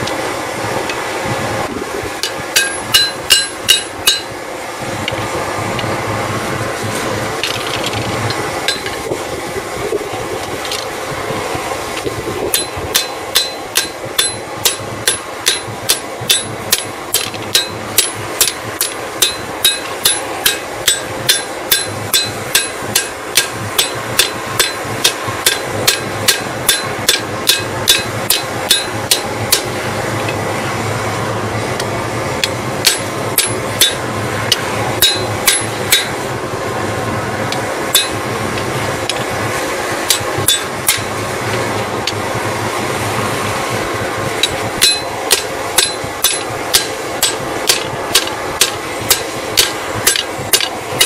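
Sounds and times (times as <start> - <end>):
hammer ringing on steel: 2.6 - 4.4, 12.5 - 29.7, 32.8 - 34.0, 35.0 - 36.2, 37.9 - 38.3, 40.1 - 41.1, 44.8 - 50.7.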